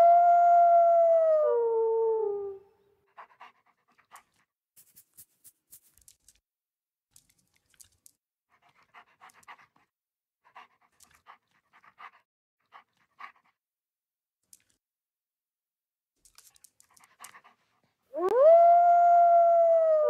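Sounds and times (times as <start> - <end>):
wolf panting: 3.1 - 4.4, 8.6 - 13.6.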